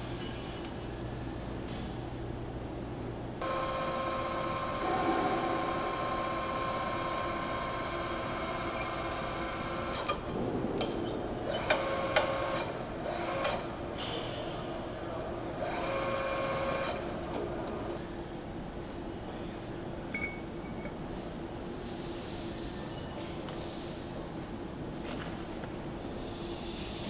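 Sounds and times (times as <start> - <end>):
machinery whine: 3.4 - 13.8.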